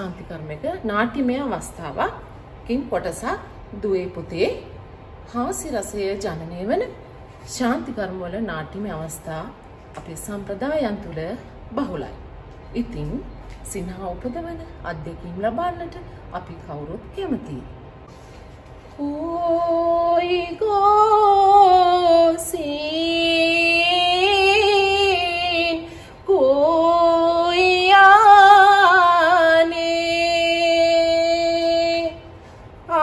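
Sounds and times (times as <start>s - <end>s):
woman singing a slow melody: 18.9s - 33.0s.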